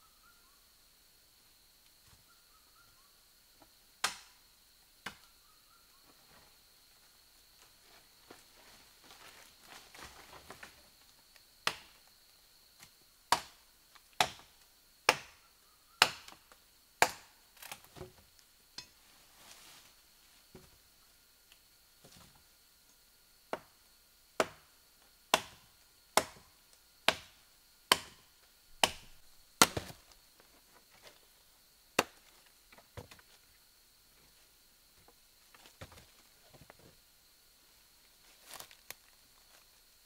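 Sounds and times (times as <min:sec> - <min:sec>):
high insect drone: 0:00.0 - 0:40.0
rustling through leafy undergrowth: 0:19.1 - 0:20.4
sharp chopping knocks: 0:28.8 - 0:30.0.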